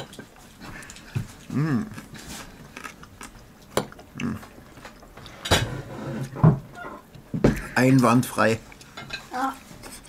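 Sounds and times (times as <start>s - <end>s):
man chewing: 0.0s - 5.4s
man humming mmm: 1.4s - 2.0s.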